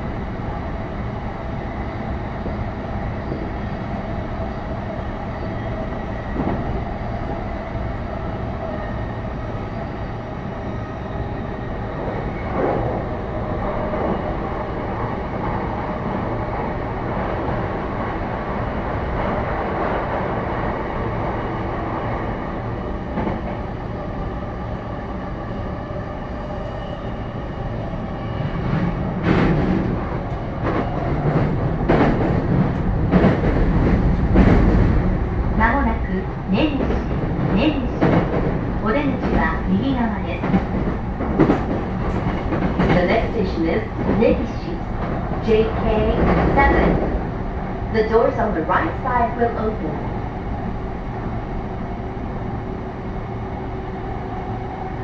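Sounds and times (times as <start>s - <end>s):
loud train clatter: 0.0s - 8.5s, 11.4s - 24.9s, 27.0s - 52.6s
train wheels rumbling on rail: 0.0s - 55.0s.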